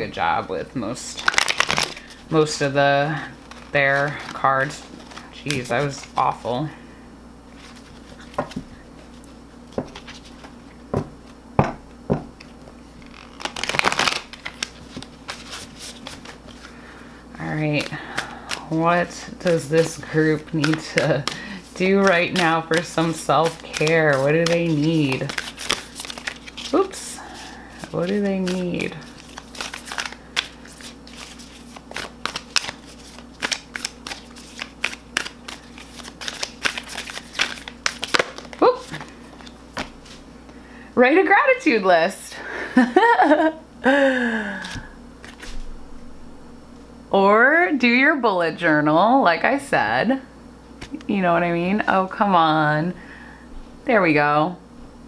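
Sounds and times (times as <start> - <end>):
cards rattling while shuffled: 1.2 - 2.6, 3.3 - 6.4, 13.0 - 16.7, 17.6 - 40.2
cards tapping: 19.8 - 26.7, 27.8 - 39.9.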